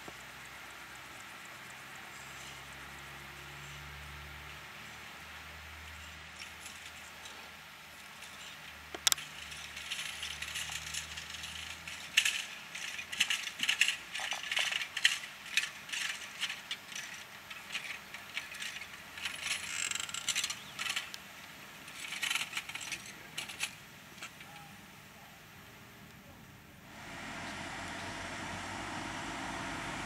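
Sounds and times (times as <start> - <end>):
wheels clattering over rail joints: 5.8 - 24.6
low engine hum: 26.8 - 30.0.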